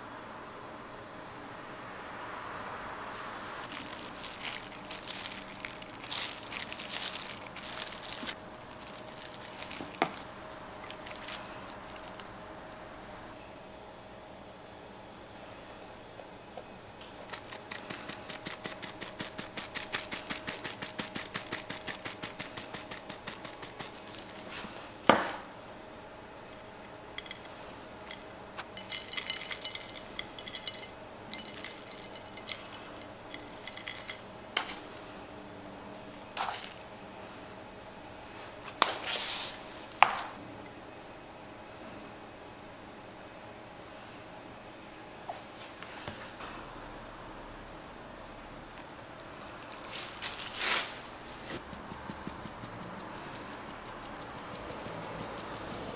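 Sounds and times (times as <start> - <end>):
light tapping sounds: 51.5 - 55.9.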